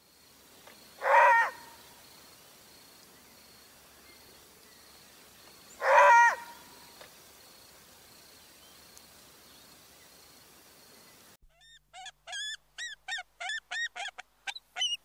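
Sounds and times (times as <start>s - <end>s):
faint outdoor background: 0.0s - 15.0s
short animal calls: 1.0s - 1.8s, 5.8s - 6.7s, 11.5s - 15.0s.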